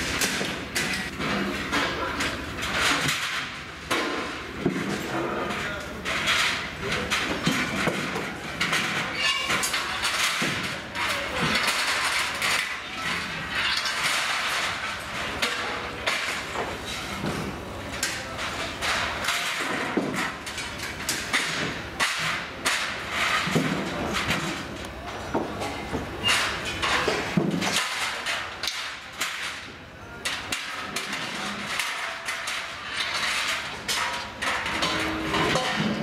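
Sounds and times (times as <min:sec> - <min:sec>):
constant background noise: 0:00.0 - 0:36.0
metal clanks and knocks: 0:00.0 - 0:36.0.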